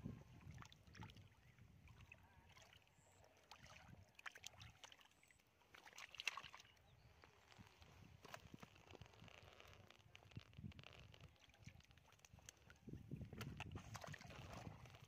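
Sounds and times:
hands splashing in muddy water: 3.4 - 6.8, 11.4 - 15.0.

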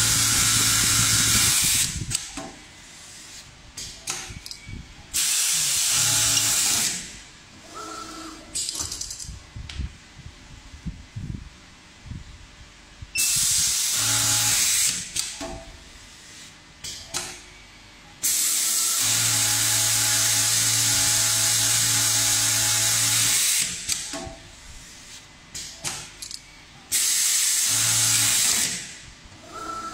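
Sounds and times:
stitching machine whirring: 26.9 - 29.9.

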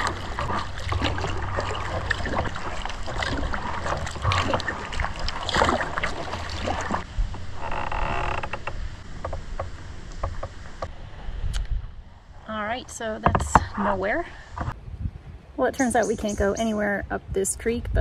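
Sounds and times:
paddle strokes splashing: 0.0 - 7.6.

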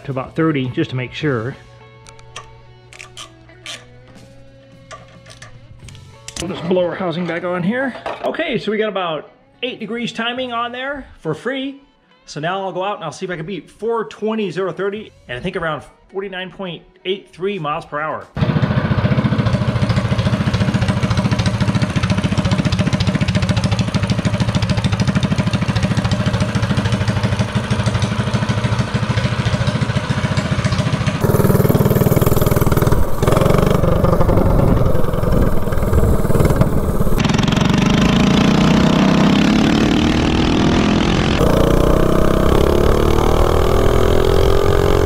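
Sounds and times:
small engine idling and revving: 18.4 - 45.0.

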